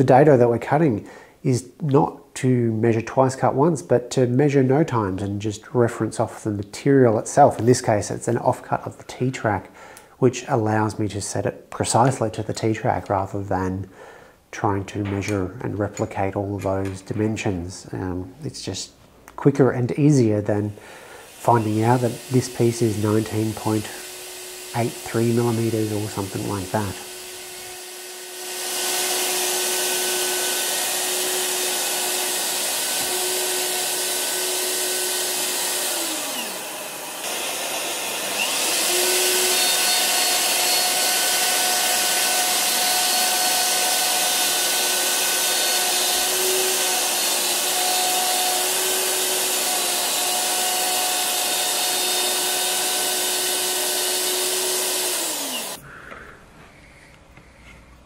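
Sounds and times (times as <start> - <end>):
dust extractor: 21.2 - 55.8
router cutting plywood: 21.3 - 55.8.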